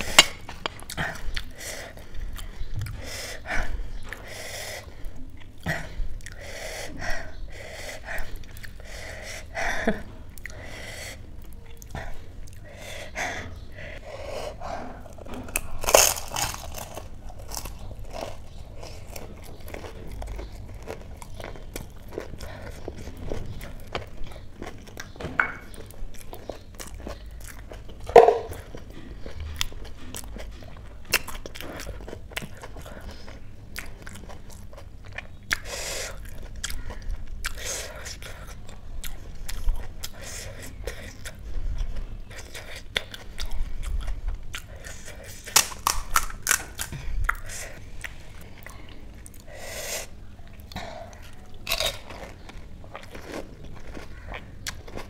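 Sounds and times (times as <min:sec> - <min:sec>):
person chewing: 0:00.0 - 0:55.0
crisp shells crunching: 0:15.5 - 0:19.1, 0:45.4 - 0:46.9.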